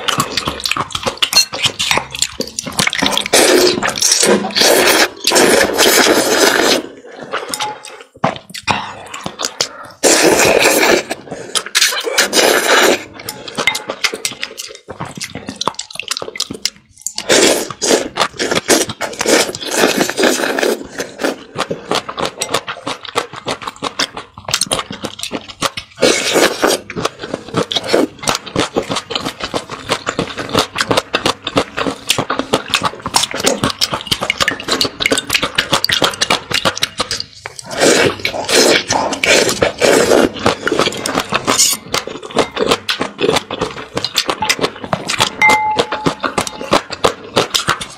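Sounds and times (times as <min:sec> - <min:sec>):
clicking mouth sounds: 0:00.0 - 0:05.4, 0:07.5 - 0:10.2, 0:23.0 - 0:47.9
slurping noodles: 0:00.0 - 0:47.9
wet chewing: 0:00.0 - 0:47.9.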